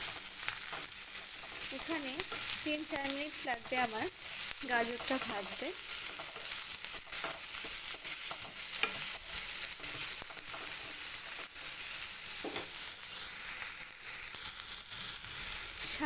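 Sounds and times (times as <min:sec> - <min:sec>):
carrots sizzling in hot oil: 0:00.0 - 0:16.0
wooden spatula scraping a pan: 0:03.6 - 0:11.7.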